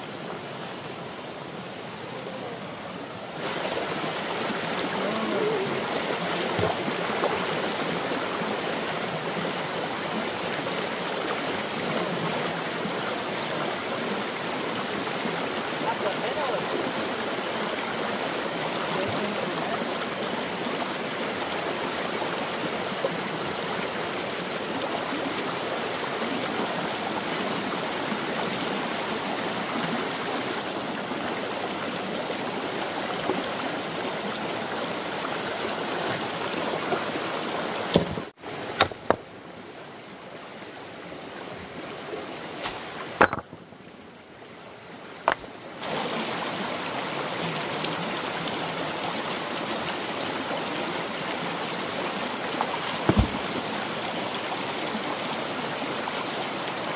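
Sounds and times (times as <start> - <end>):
rushing flowing water: 0.0 - 56.9
sharp knocks: 37.9 - 39.2, 53.0 - 53.5.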